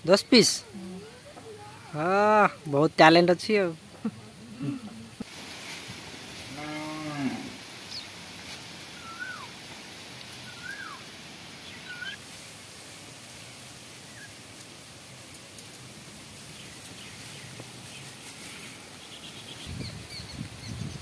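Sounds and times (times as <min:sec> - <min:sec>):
cow mooing: 0:06.5 - 0:07.6
bird chirps: 0:10.4 - 0:11.0, 0:11.6 - 0:12.2, 0:19.0 - 0:21.0.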